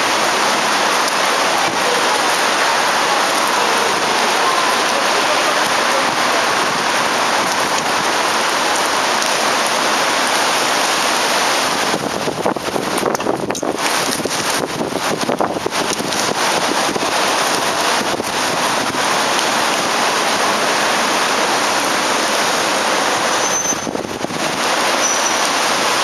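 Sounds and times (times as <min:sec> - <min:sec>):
rain hissing on pavement: 0:00.0 - 0:26.0
wind buffeting microphone: 0:11.0 - 0:24.9.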